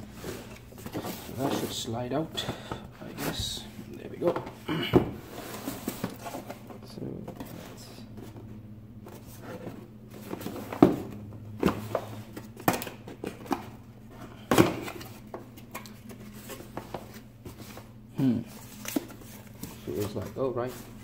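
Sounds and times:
cardboard rustling scrapes: 5.2s - 6.5s.

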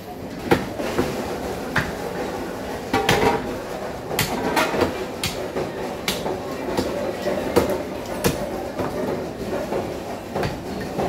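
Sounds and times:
cleaver chopping meat and bone: 0.5s - 1.1s, 1.7s - 2.0s, 4.1s - 8.9s, 10.4s - 10.6s.

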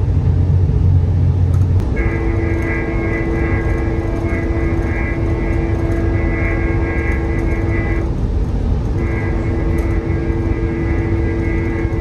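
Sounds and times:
train rumbling on rails: 0.0s - 12.0s
train horn chord: 1.8s - 8.3s, 8.9s - 12.0s.

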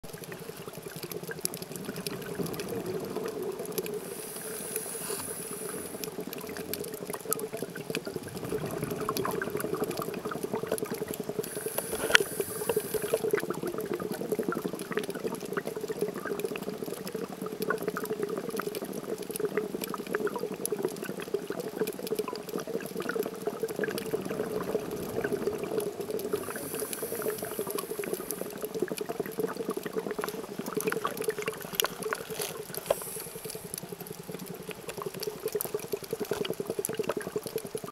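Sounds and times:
underwater bubbling wash: 0.0s - 37.9s
diver exhaling bubbles: 1.7s - 6.8s, 8.0s - 13.9s, 23.0s - 34.0s.

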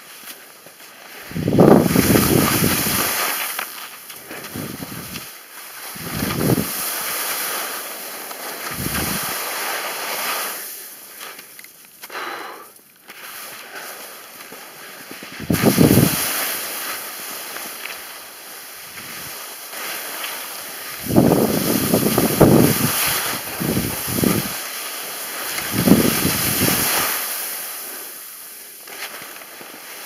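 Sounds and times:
skis scraping over snow: 0.0s - 30.0s
wind rumbling on microphone: 1.2s - 3.3s, 4.3s - 5.3s, 5.9s - 6.8s, 8.6s - 9.4s, 15.3s - 16.4s, 18.8s - 19.4s, 20.9s - 24.6s, 25.6s - 27.2s.

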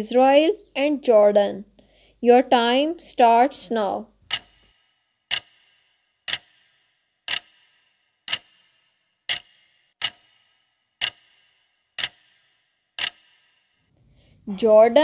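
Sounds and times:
clock ticking: 4.2s - 13.8s.

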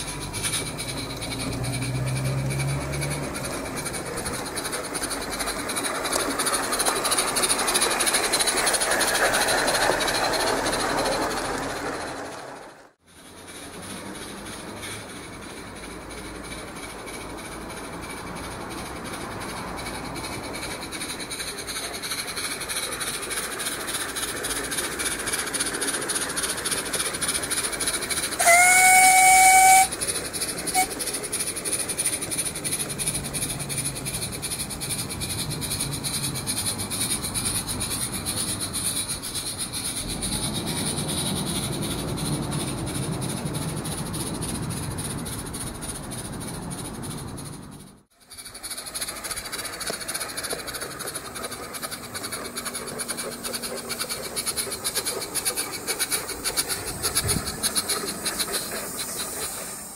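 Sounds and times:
model steam locomotive chuffing: 0.0s - 59.9s
train rumbling along track: 0.0s - 59.9s
steam whistle: 28.2s - 31.1s.

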